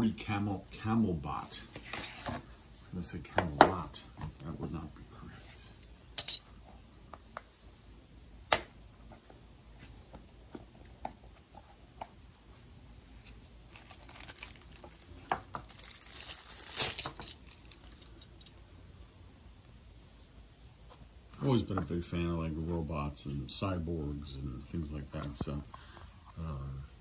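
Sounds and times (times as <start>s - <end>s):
plastic packaging crinkling: 13.7s - 18.4s.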